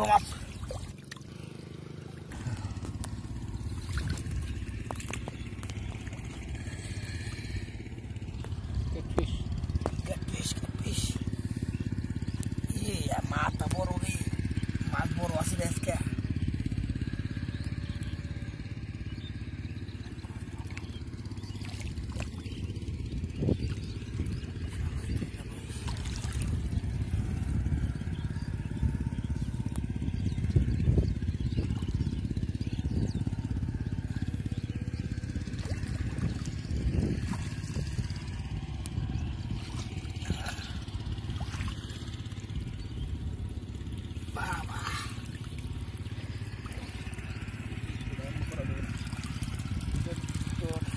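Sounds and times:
water sloshing: 0.0s - 14.8s, 19.4s - 27.8s, 35.3s - 50.9s
small engine pulsing: 0.0s - 50.9s
steady low rumble: 0.0s - 50.9s.

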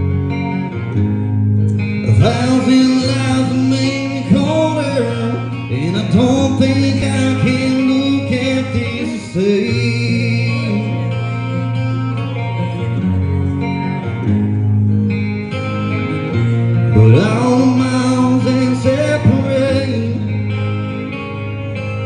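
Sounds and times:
guitar accompaniment: 0.0s - 22.0s
man singing into a microphone: 1.9s - 11.9s, 16.2s - 20.8s.

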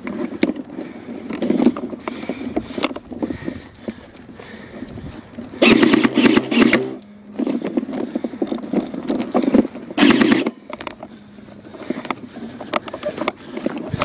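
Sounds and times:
handling and rustling: 0.0s - 14.0s
airsoft rifle firing bursts: 5.6s - 7.0s, 10.0s - 10.6s.

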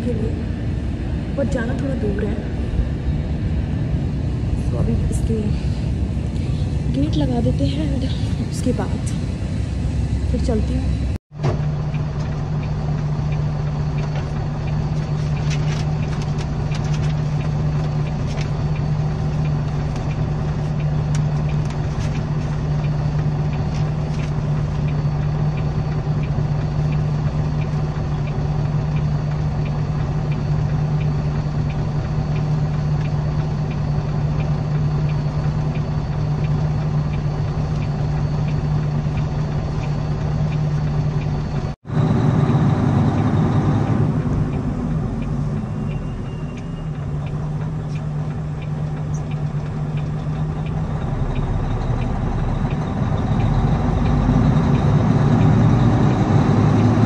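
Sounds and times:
truck engine idling: 0.0s - 57.0s
paper and pen rustles and clicks: 14.9s - 18.5s, 21.4s - 22.6s.

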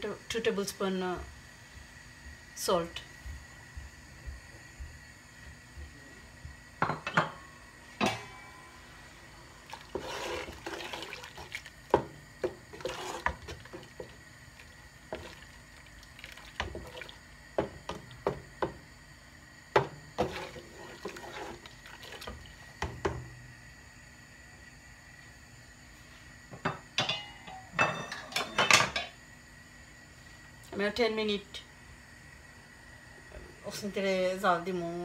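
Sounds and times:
liquid swishing and sloshing: 9.6s - 11.9s, 12.5s - 17.2s, 20.2s - 22.6s.

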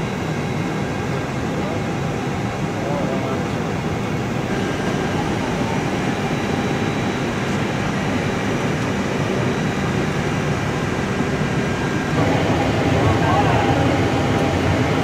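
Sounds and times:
air-conditioning airflow: 0.2s - 15.0s
equipment fans humming: 4.0s - 15.0s.

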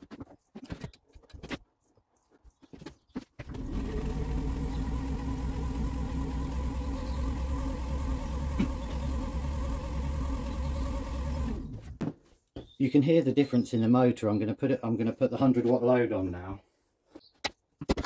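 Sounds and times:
motor humming: 3.5s - 12.0s.

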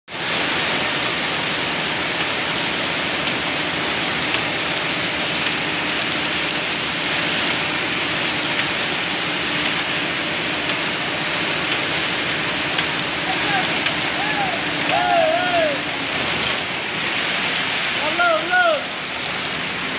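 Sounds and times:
concrete pouring from hose: 0.1s - 19.9s
faint pump hum: 0.1s - 19.9s.

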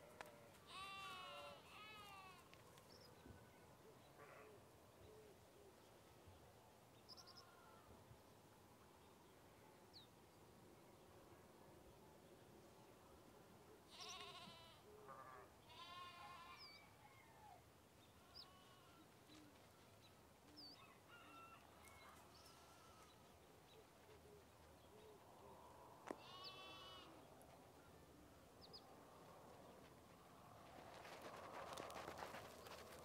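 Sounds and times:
farm animals bleating: 0.2s - 2.4s, 13.9s - 16.8s, 18.2s - 19.1s, 22.4s - 23.2s, 26.1s - 27.3s.

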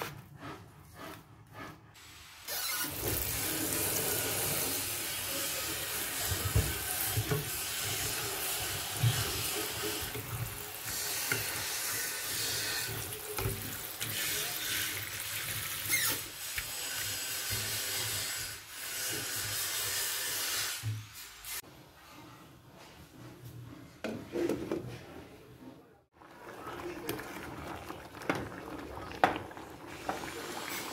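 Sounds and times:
tap water running into metal pot: 2.9s - 18.2s, 26.4s - 30.9s.

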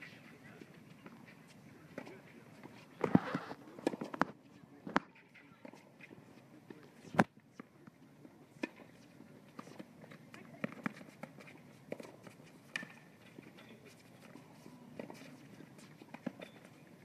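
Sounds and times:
tennis balls bouncing: 0.6s - 8.0s, 8.6s - 17.0s
rackets striking tennis balls: 1.0s - 17.0s
players' footsteps: 8.6s - 17.0s.

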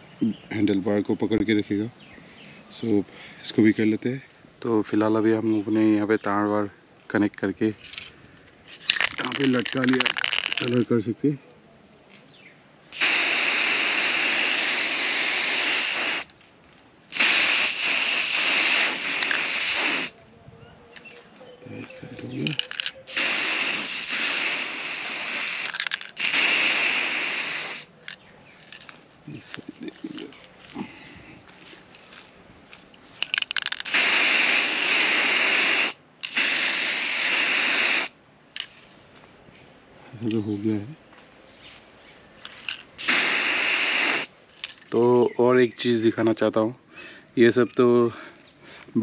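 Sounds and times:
aerosol spray can spraying: 13.0s - 16.3s, 17.1s - 20.2s, 22.5s - 28.0s, 33.4s - 38.2s, 43.0s - 44.3s.

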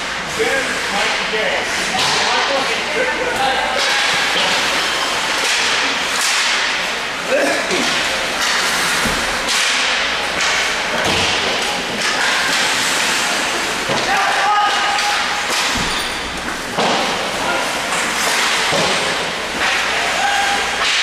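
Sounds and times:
skate blades scraping ice: 4.2s - 20.9s.

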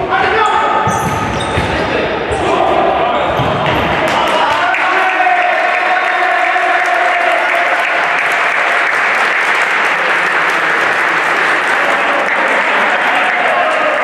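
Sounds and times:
crowd applauding: 4.0s - 14.0s.

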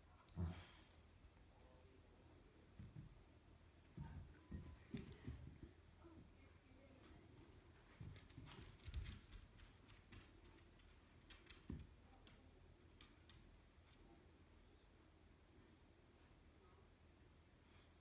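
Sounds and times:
dog claws on tile floor: 4.6s - 5.6s, 8.0s - 14.0s
collar tag jingling: 4.8s - 5.4s, 8.0s - 10.2s.

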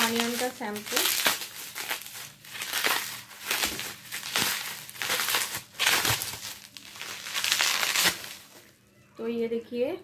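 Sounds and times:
bubble wrap crinkling: 0.0s - 8.8s.

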